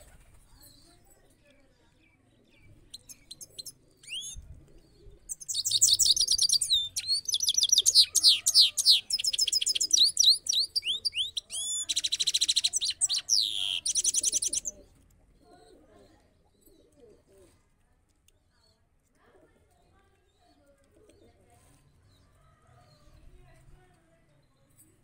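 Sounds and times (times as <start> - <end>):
goldfinch singing: 2.9 - 4.5, 5.3 - 14.9.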